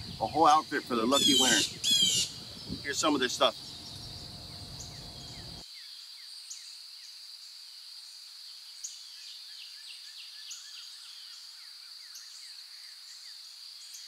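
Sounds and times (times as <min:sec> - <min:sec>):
bird chirps: 0:00.0 - 0:05.9.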